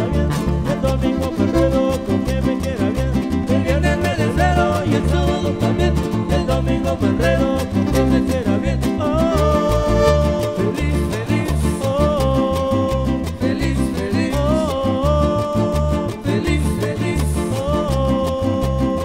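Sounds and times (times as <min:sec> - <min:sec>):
bouncing bass line: 0:00.0 - 0:19.0
live band playing latin dance music: 0:00.0 - 0:19.0.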